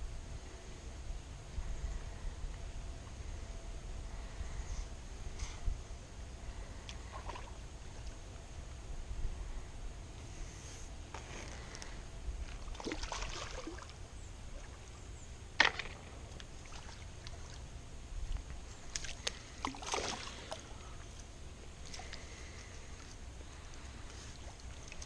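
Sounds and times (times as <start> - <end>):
wind rumble on microphone: 0.0 - 19.6
water splashing and sloshing: 6.7 - 8.2, 12.4 - 25.0.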